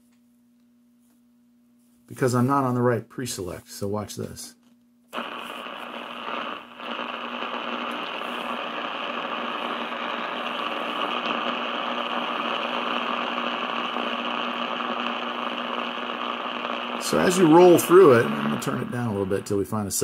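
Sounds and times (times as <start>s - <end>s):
radio static hiss: 5.2s - 20.0s
low hum: 11.6s - 19.7s.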